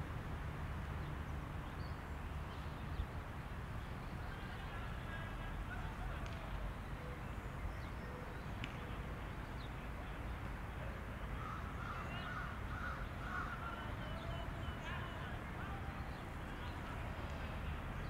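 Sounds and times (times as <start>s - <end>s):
birds calling: 11.3s - 16.9s.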